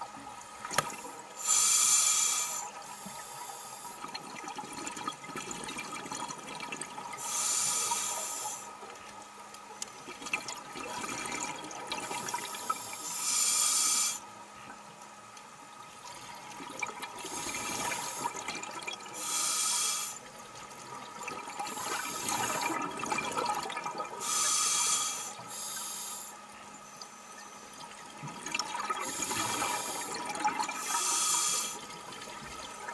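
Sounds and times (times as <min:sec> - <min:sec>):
hissing regulator breaths: 0:01.4 - 0:04.0, 0:07.2 - 0:08.7, 0:12.5 - 0:14.2, 0:19.2 - 0:20.2, 0:24.2 - 0:26.4, 0:29.0 - 0:31.8
exhaled bubbles underwater: 0:04.0 - 0:07.2, 0:10.1 - 0:12.9, 0:16.0 - 0:19.2, 0:20.6 - 0:24.3, 0:27.8 - 0:31.0.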